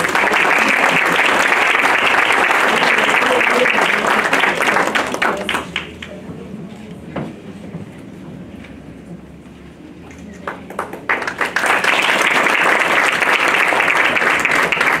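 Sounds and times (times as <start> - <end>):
audience applause: 0.0 - 6.0, 10.5 - 15.0
scattered claps: 0.0 - 6.2, 10.5 - 15.0.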